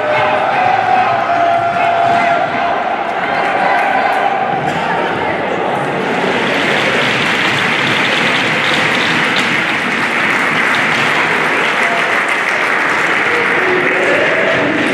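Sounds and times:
spectators applauding: 5.9 - 14.9.

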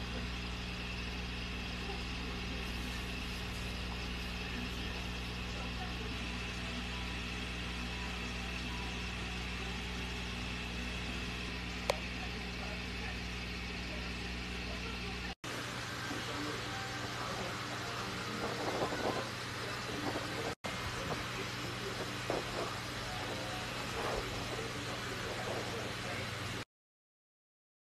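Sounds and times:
low mechanical hum: 0.0 - 26.6.

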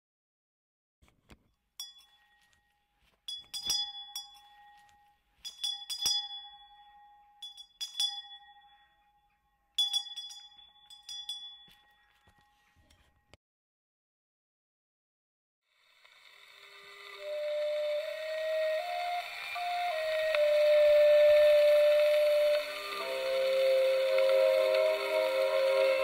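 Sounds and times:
small hand bell tolling: 1.8 - 12.4.

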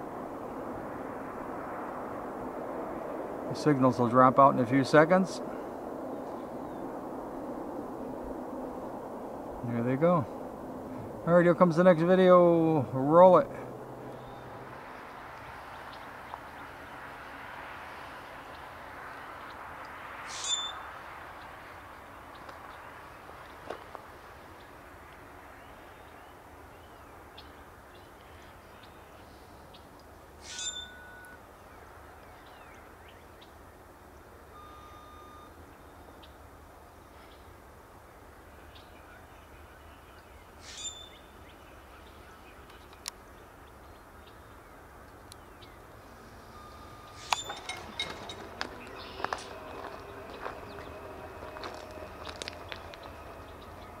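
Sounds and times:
whistled bird notes: 20.3 - 20.9, 30.4 - 33.2, 38.7 - 42.6, 46.5 - 54.0
bird calling: 20.3 - 21.6, 30.4 - 33.6, 38.7 - 54.0.

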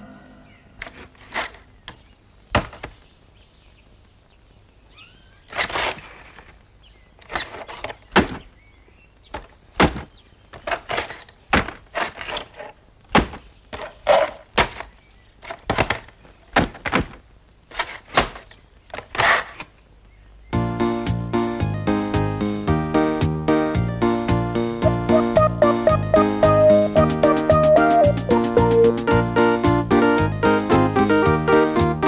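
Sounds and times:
wooden crates knocking: 9.3 - 12.0, 13.1 - 17.2
music: 20.6 - 32.0.

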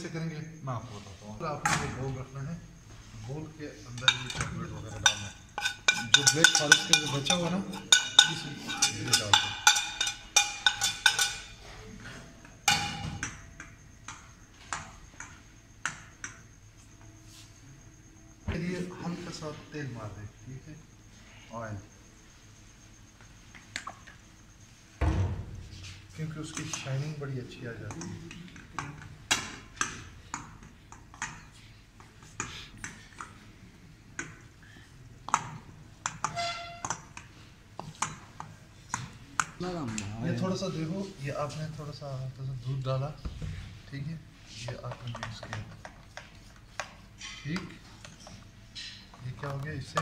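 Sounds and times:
metal spoon scraping a plate: 4.0 - 11.6
metallic ring of pan: 4.0 - 11.6, 12.7 - 13.4.

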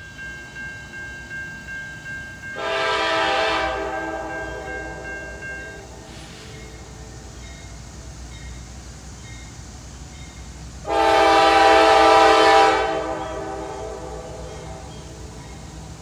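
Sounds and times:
locomotive rumble: 0.0 - 16.0
locomotive air horn blast: 2.6 - 5.4, 10.8 - 14.9.

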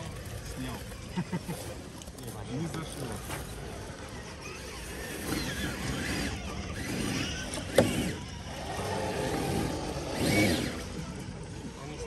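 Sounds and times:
electric motor whining: 3.7 - 11.7.

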